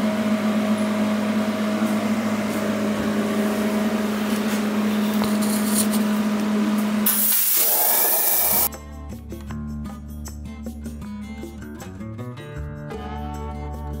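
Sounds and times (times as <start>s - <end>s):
machine hum: 0.0s - 8.7s.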